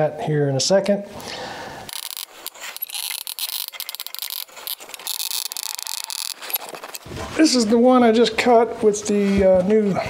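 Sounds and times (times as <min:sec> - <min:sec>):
caulking gun clicks and scraping: 0:01.9 - 0:07.1.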